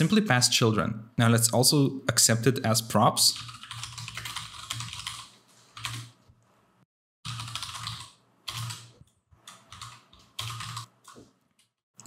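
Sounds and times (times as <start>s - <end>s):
typing on computer keyboard: 3.3s - 6.1s, 7.3s - 11.7s.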